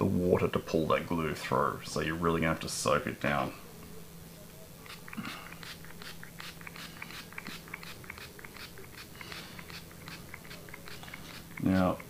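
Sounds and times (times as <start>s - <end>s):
spray bottle hissing puffs: 4.9s - 11.9s.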